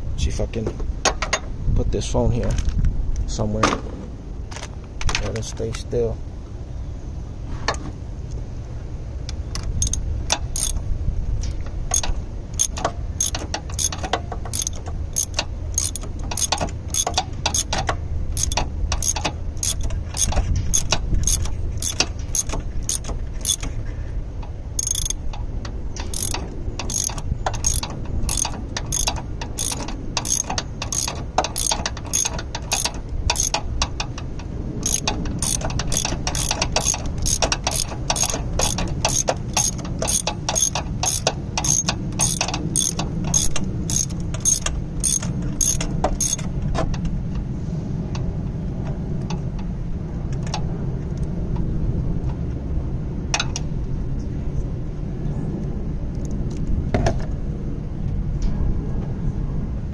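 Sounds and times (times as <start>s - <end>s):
socket ratchet clicking: 9.6s - 23.8s, 24.4s - 46.5s.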